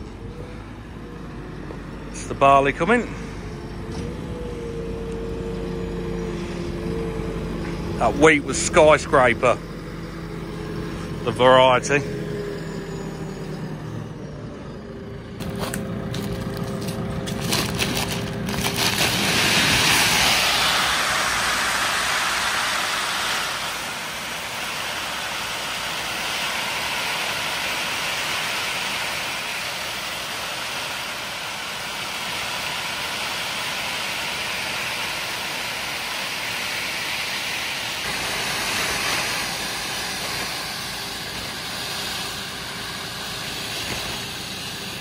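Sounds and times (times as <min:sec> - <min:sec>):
grain pouring: 0:15.4 - 0:45.0.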